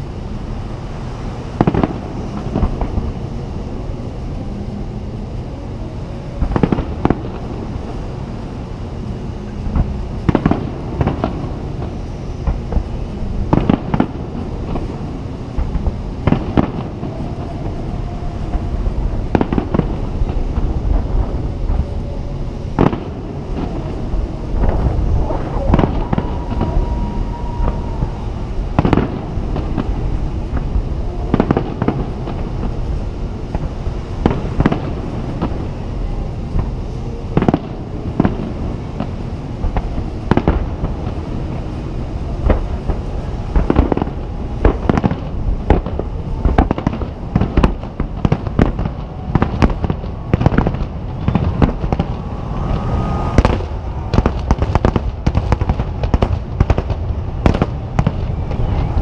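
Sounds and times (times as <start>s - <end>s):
firework crackles: 0.0s - 59.0s
low rumble: 0.0s - 59.0s
firework shells booming: 1.5s - 4.4s, 6.4s - 8.2s, 9.6s - 36.8s, 37.4s - 59.0s.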